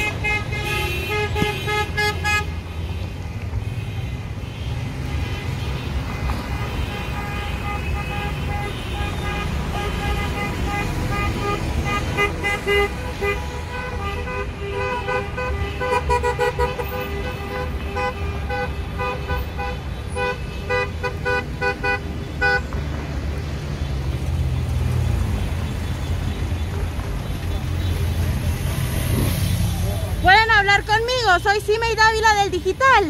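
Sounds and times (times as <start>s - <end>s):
car horns honking: 0.0s - 22.7s.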